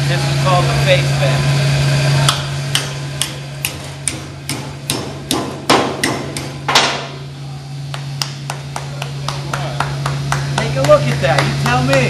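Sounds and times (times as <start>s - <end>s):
hammer striking metal: 2.3s - 7.2s.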